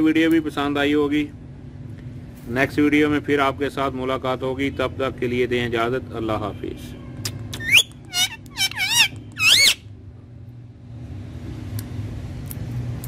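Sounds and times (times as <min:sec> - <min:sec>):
parakeet warbling whistles: 0:07.6 - 0:09.9.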